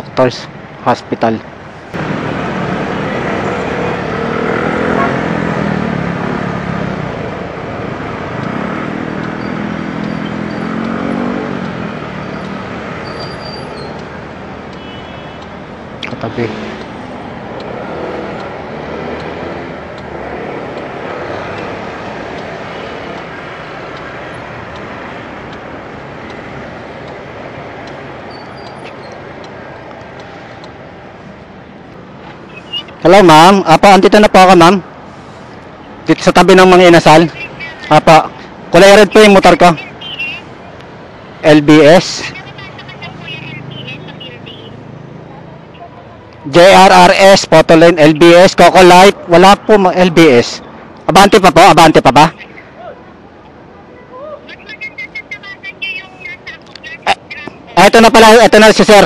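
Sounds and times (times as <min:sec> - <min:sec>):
wind and road noise: 0:00.0 - 0:59.0
motorcycle engine: 0:02.0 - 0:07.5, 0:08.3 - 0:14.0.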